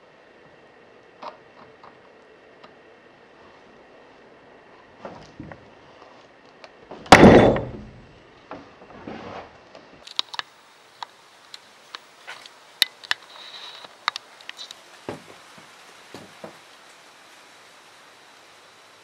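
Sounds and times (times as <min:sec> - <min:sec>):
heavy knock: 0:07.1 - 0:08.1.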